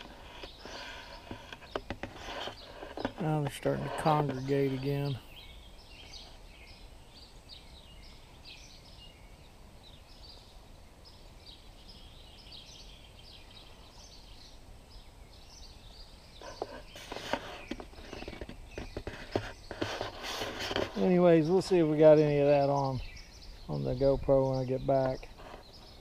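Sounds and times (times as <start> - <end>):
camera handling rustling and knocking: 0.0 - 3.6, 16.4 - 21.0
faint outdoor background noise: 0.0 - 26.0
small birds chirping: 0.0 - 26.0.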